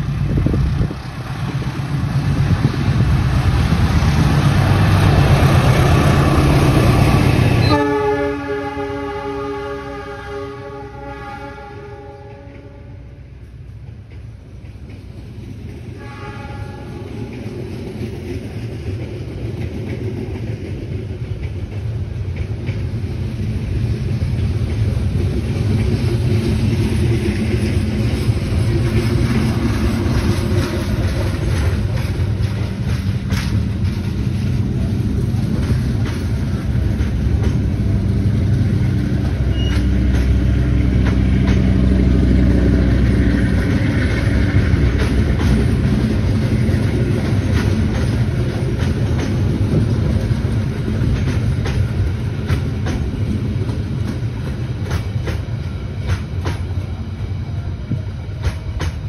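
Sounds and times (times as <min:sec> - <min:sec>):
train coaches rumbling past: 0:00.0 - 0:59.0
wheels clicking over rail joints: 0:16.9 - 0:57.0.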